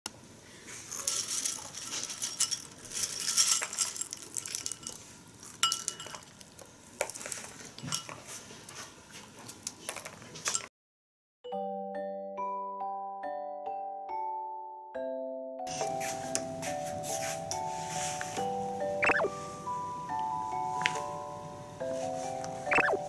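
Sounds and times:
snacks rattling in a bowl: 0:00.9 - 0:08.2.

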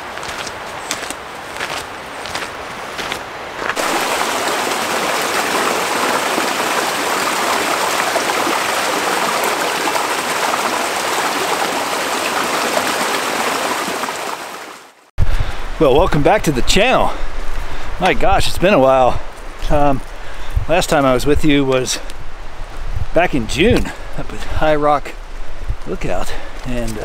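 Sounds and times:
footsteps on dirt trail: 0:00.0 - 0:04.8
creek running over rocks: 0:00.0 - 0:15.1, 0:15.8 - 0:22.0.

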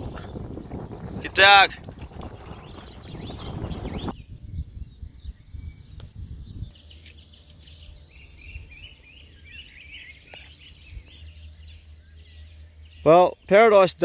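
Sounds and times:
low rumble on microphone: 0:00.0 - 0:06.9
small birds chirping: 0:00.0 - 0:14.0.

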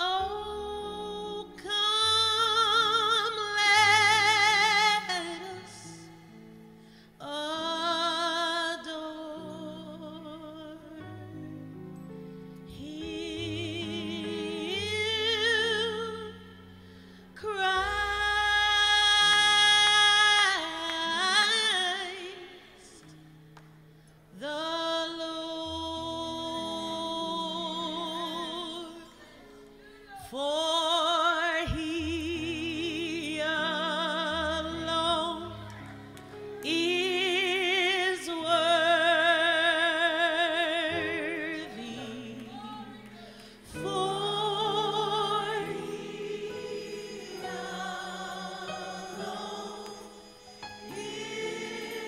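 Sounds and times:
woman singing gospel: 0:00.0 - 0:06.3, 0:07.2 - 0:11.3, 0:12.7 - 0:16.6, 0:17.3 - 0:23.1, 0:24.4 - 0:52.0
sustained accompaniment chords: 0:43.8 - 0:52.0.

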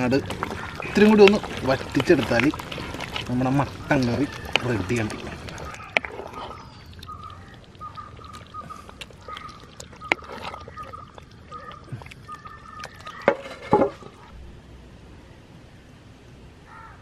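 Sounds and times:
ladle stirring thick curry: 0:00.0 - 0:14.3
bird chirping: 0:03.6 - 0:13.4.

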